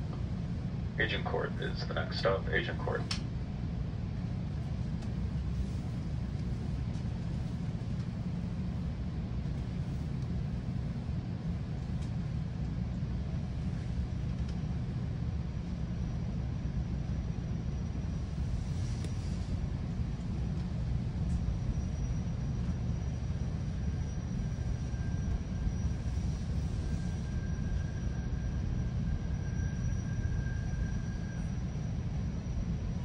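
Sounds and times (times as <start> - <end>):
train coach rumbling: 0.0 - 15.8.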